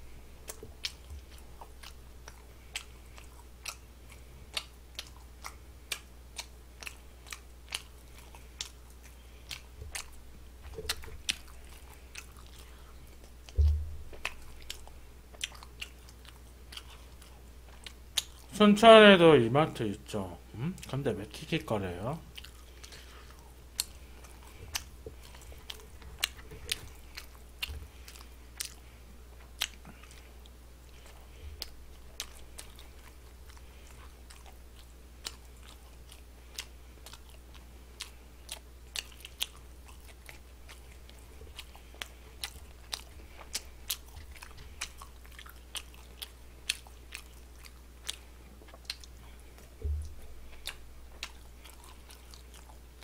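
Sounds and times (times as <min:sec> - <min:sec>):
person chewing food: 0:00.0 - 0:18.5, 0:21.8 - 0:53.0
steady low hum: 0:00.0 - 0:53.0
dull bump: 0:13.6 - 0:14.4, 0:49.8 - 0:50.3.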